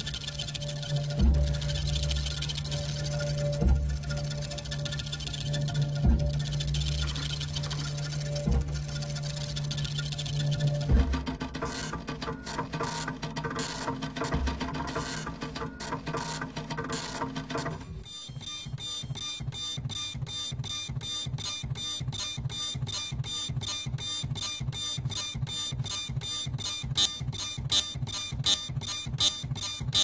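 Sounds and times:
low pulsing beats: 0:00.0 - 0:12.4
rhythmic sharp clicks: 0:00.0 - 0:30.0
printer heads buzzing at pitches: 0:18.0 - 0:30.0.

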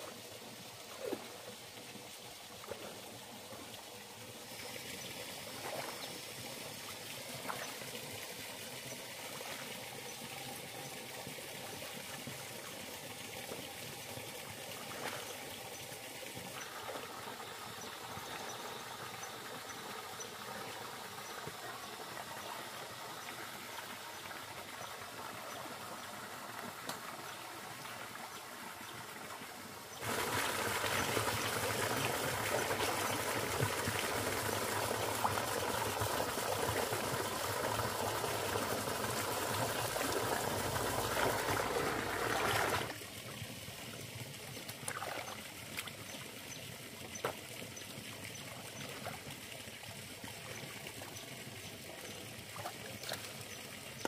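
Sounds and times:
water trickling into river: 0:00.0 - 0:54.0.

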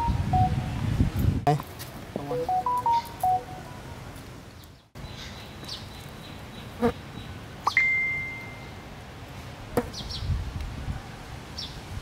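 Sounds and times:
clear ringing tone: 0:00.0 - 0:00.6, 0:02.3 - 0:03.7
outdoor background hiss: 0:00.0 - 0:12.0
short high chirps: 0:02.3 - 0:03.6, 0:07.7 - 0:08.8.

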